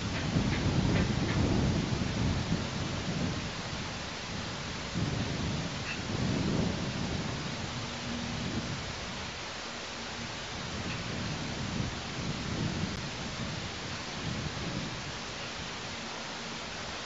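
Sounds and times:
wind buffeting microphone: 0.0s - 9.5s, 10.2s - 16.1s
steady hiss: 0.0s - 17.0s.

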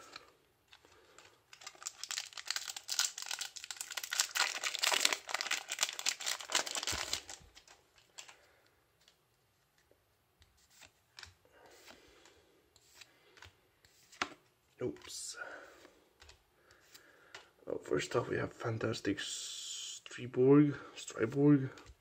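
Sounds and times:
cards rustling: 0.0s - 9.2s, 10.5s - 17.5s
foil wrapper tearing and crinkling: 1.5s - 8.3s.

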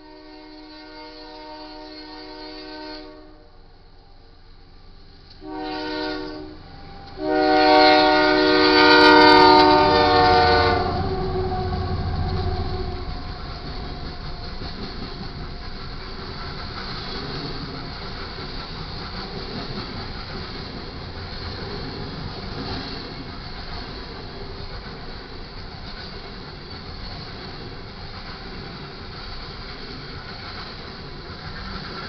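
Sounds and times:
locomotive air horn blasts: 0.0s - 3.6s, 5.4s - 13.7s
train rumbling with wheel clatter: 4.0s - 32.0s.

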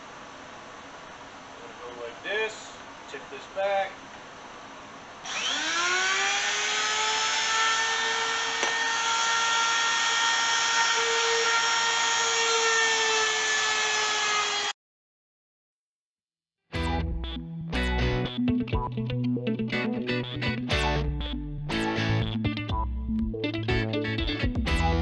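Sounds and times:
router motor high whine: 5.2s - 14.8s.

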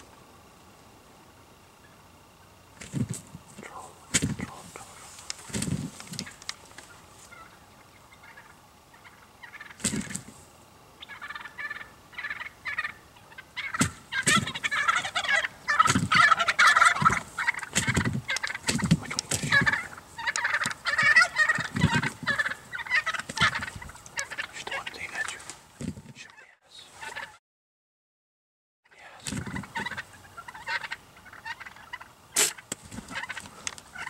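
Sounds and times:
turkeys gobbling: 1.7s - 10.4s, 11.0s - 27.4s, 29.2s - 34.0s.

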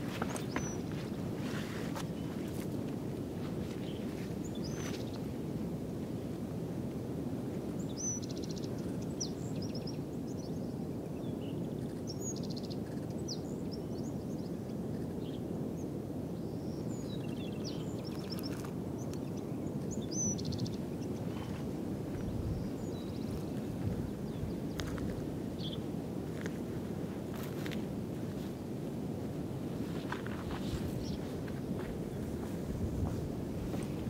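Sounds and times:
songbird chirp and buzzy trill: 0.0s - 1.2s, 7.8s - 21.5s, 22.2s - 25.0s, 25.6s - 25.9s.

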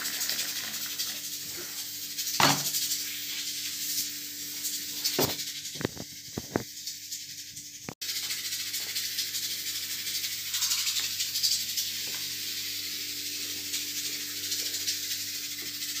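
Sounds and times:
background music with shaker: 1.0s - 16.0s.

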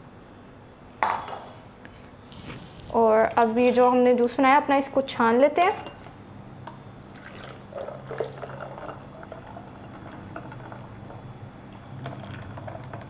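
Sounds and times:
juice pouring and splashing: 7.0s - 11.1s, 12.0s - 13.0s.

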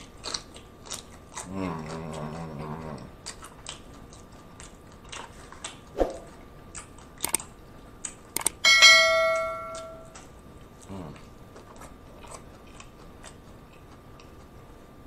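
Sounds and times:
crunchy chewing: 0.0s - 8.6s, 10.0s - 15.0s
person humming mmm: 10.9s - 11.2s.

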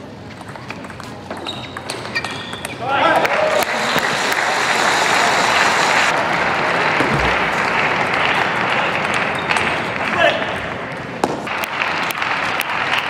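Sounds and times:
audience applauding: 3.1s - 10.1s, 11.5s - 13.0s.

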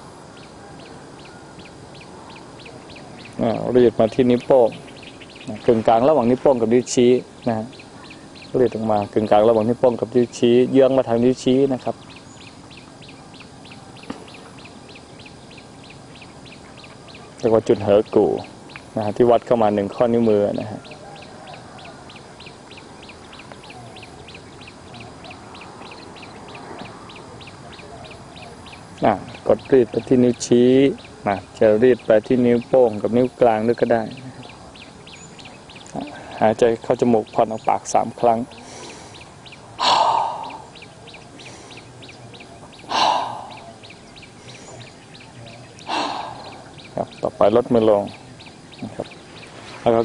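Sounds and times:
faint outdoor background noise: 0.0s - 50.0s
faint rapid chirping: 0.0s - 50.0s
man breathing out hard: 38.6s - 40.8s, 42.9s - 43.7s, 45.9s - 46.7s.

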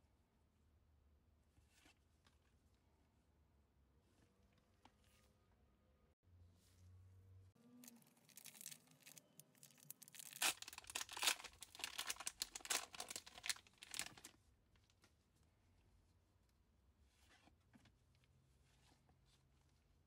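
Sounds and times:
foil wrapper crinkling: 7.8s - 14.3s
foil wrapper tearing: 7.8s - 14.3s.

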